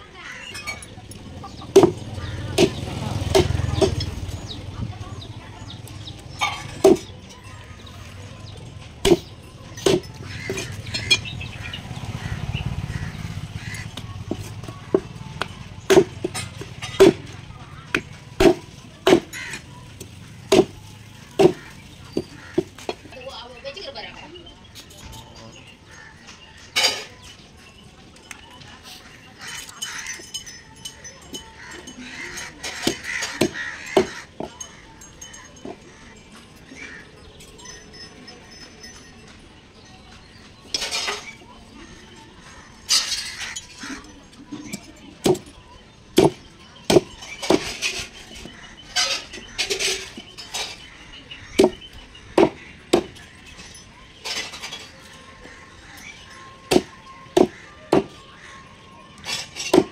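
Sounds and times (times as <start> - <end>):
knife chopping fish on wood: 17.9 - 19.3.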